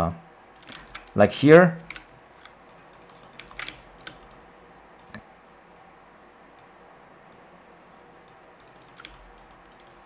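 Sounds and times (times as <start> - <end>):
computer mouse and keyboard clicks: 0.6 - 1.2, 1.8 - 5.9, 8.2 - 10.0.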